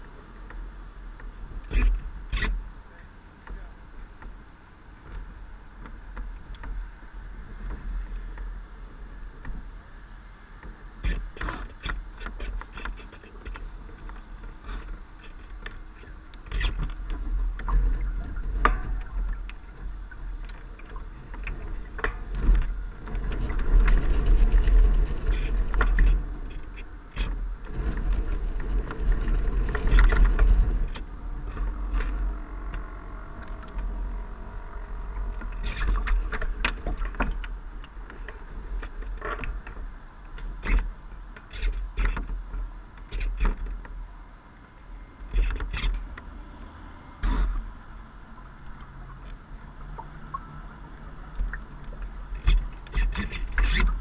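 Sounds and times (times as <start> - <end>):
wind rumble on microphone: 0.0 - 54.0
water slapping against a hull: 48.5 - 54.0.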